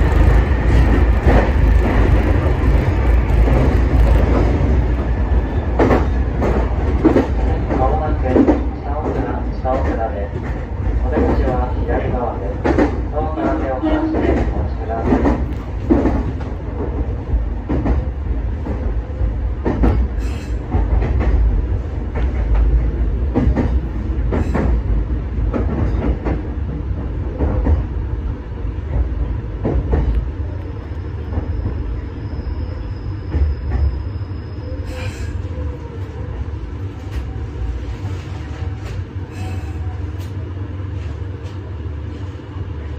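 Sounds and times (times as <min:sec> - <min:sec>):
wheels clacking on rail joints: 0:00.0 - 0:19.0, 0:19.6 - 0:27.9
train rumble: 0:00.0 - 0:42.9.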